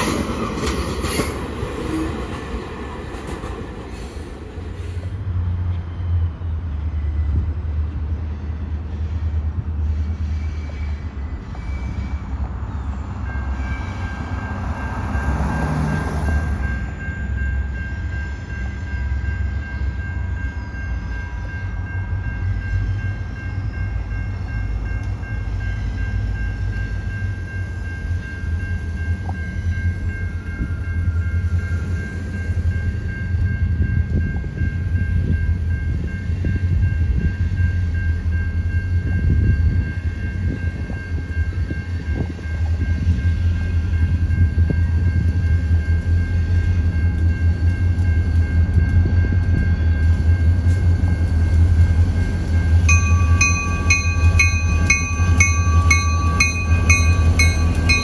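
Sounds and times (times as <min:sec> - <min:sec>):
diesel locomotive engine rumble: 0:00.0 - 0:58.0
thin high-pitched tone: 0:52.9 - 0:58.0.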